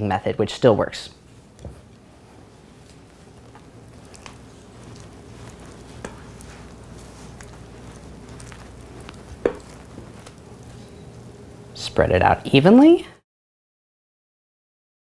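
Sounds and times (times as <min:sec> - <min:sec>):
low steady hum: 0:00.0 - 0:13.2
wooden spoon scraping glass bowl: 0:02.7 - 0:11.1.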